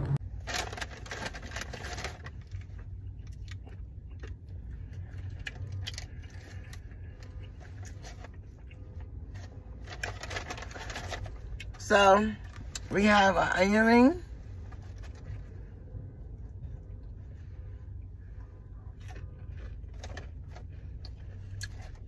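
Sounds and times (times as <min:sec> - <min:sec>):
low rumble: 0:00.0 - 0:11.8, 0:14.2 - 0:22.0
paper bag rustling: 0:00.2 - 0:02.6, 0:09.3 - 0:11.5.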